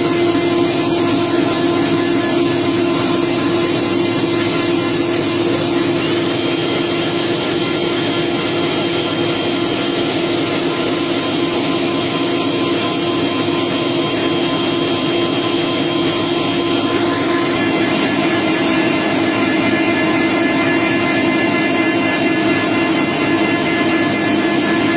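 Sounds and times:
machine humming: 0.0 - 24.9.

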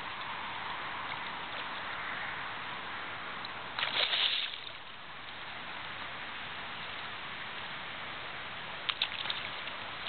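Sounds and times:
river water lapping: 3.7 - 5.0, 8.9 - 10.0.

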